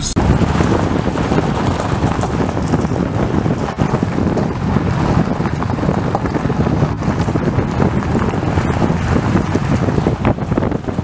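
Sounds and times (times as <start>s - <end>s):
tyres and drivetrain rumble: 0.0s - 11.0s
wind buffeting microphone: 0.0s - 11.0s.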